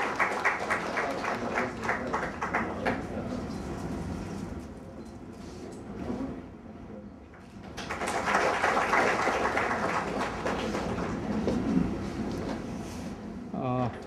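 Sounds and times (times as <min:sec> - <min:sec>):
audience clapping: 0:00.0 - 0:03.2, 0:07.7 - 0:11.7.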